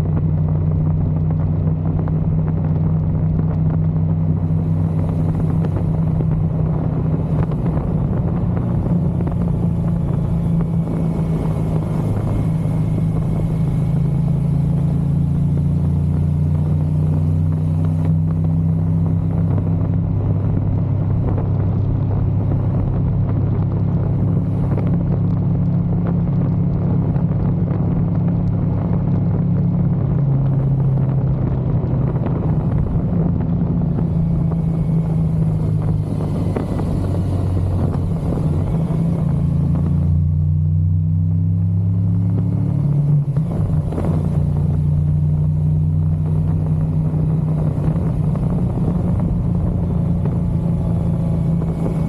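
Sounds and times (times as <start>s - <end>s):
motorcycle engine running: 0.0s - 52.0s
wind and road noise: 0.0s - 52.0s.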